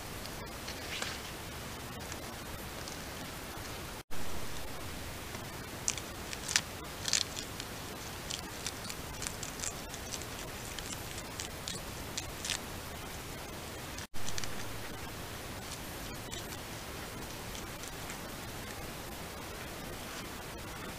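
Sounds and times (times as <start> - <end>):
microphone hiss: 0.0 - 20.9
porcupine chewing leaves: 4.5 - 18.8.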